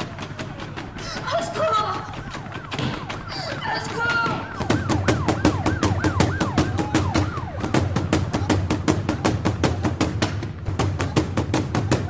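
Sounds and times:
warbling siren-like tone: 0.0s - 8.5s.

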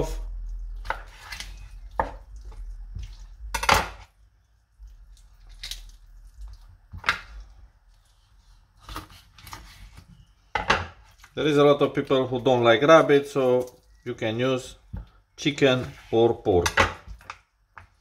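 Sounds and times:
handling wet meat: 0.0s - 16.6s.

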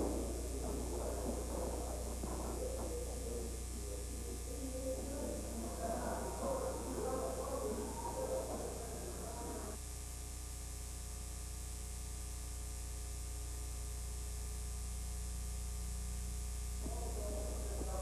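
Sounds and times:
muffled busy sound: 0.0s - 9.8s, 16.8s - 18.0s
low electrical hum with hiss: 0.0s - 18.0s.

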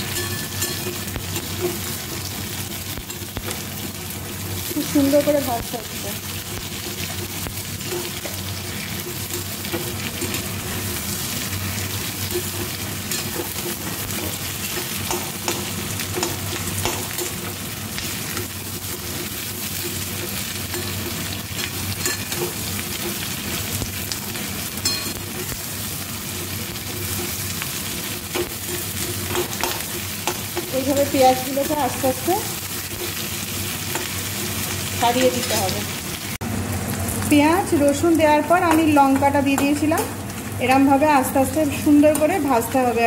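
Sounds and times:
onions sizzling in hot oil: 0.0s - 43.0s
spatula scraping pan: 6.7s - 34.8s.

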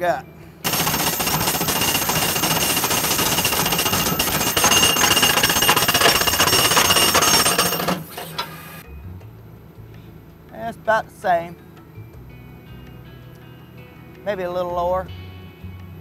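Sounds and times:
high metallic ring: 0.6s - 8.8s
hydraulic rod driver hammering: 0.7s - 8.8s.

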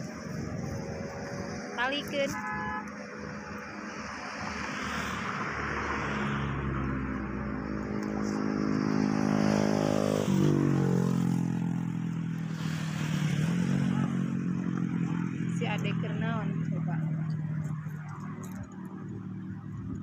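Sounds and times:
vehicle driving past: 4.0s - 20.0s.

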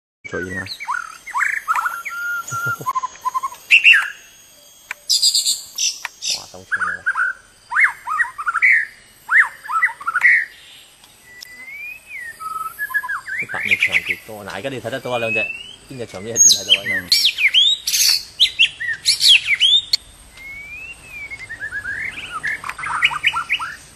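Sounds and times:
bird singing whistled phrases: 0.3s - 23.9s.

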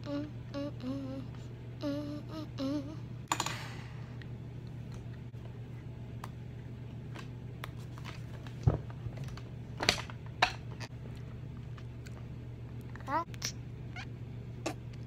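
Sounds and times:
steady low hum: 0.0s - 15.0s
mouth clicks and smacks: 13.3s - 13.6s.

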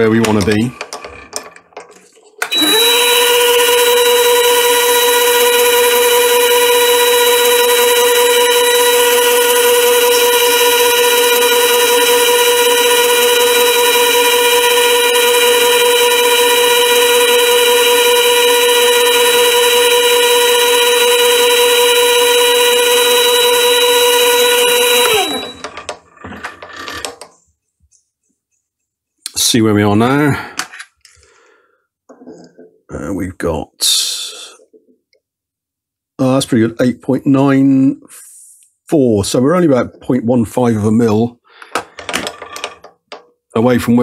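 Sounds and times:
lathe winding down: 2.4s - 26.4s
lathe motor whining: 2.4s - 27.2s.

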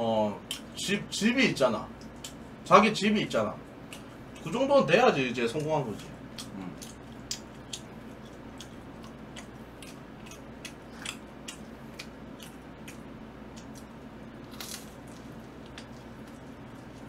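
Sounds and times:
chewing and crunching food: 3.8s - 4.6s, 5.4s - 17.0s.

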